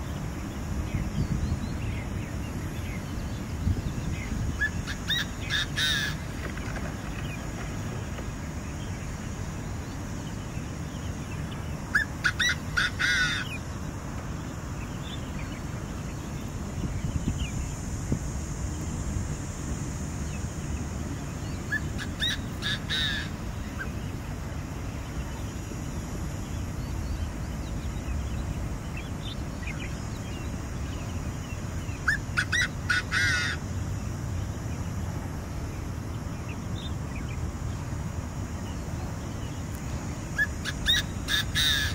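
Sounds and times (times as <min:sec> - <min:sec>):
bird calling grating notes: 0:04.7 - 0:06.2.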